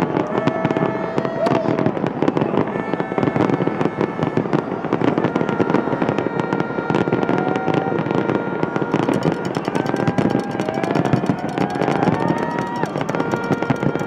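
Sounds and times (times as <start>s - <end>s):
fireworks crackling and banging: 0.0s - 14.0s
thin high tones: 9.0s - 14.0s.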